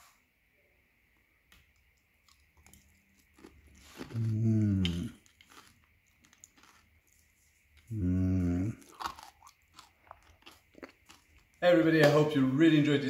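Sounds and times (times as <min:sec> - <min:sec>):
sugar crust crunching: 0:01.5 - 0:11.6
man humming mmm: 0:04.1 - 0:05.2, 0:07.9 - 0:08.8.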